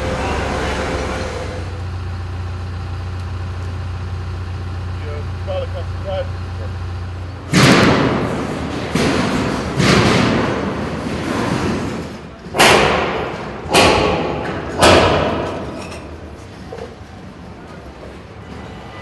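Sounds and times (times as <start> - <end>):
heavy echoing bangs: 7.4 - 15.7.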